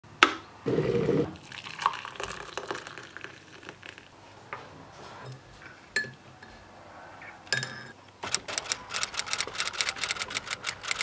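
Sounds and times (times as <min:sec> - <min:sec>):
hot water pouring into mug: 0:01.4 - 0:04.1.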